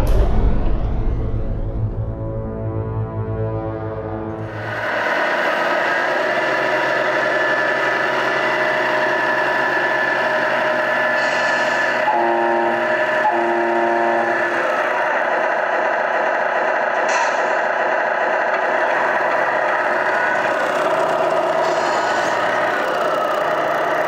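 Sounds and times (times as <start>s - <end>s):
simulated diesel truck engine: 3.5s - 24.0s
simulated air horn blasts: 9.0s - 14.8s.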